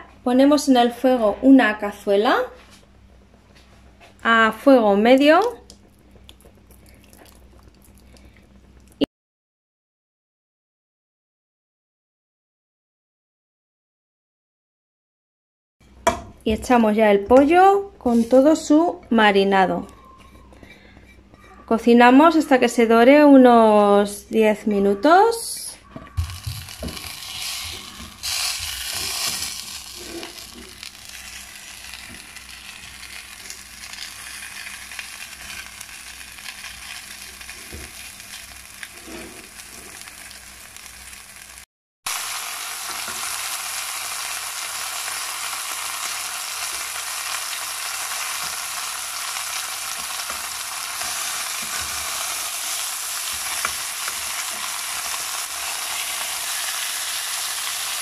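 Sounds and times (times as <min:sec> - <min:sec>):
chicken sizzling in a pot: 0:26.2 - 0:58.0
spatula scraping and knocking: 0:29.0 - 0:30.7, 0:39.0 - 0:39.9.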